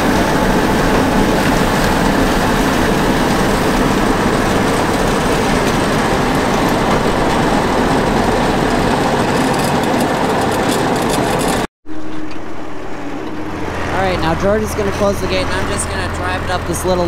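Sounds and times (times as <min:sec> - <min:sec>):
quiet tractor engine: 0:00.0 - 0:17.0
tractor driving flail chopper: 0:00.0 - 0:17.0.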